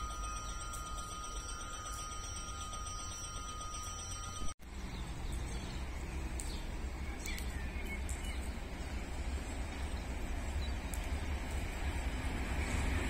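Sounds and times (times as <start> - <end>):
thin high electronic tones: 0.0 - 4.6
railway station ambience: 0.0 - 13.0.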